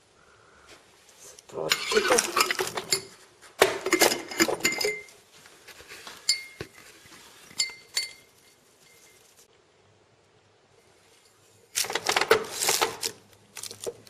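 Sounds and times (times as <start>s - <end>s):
glass jar clinking on stones: 1.7s - 3.2s, 3.9s - 5.2s, 6.2s - 6.6s, 7.6s - 9.3s.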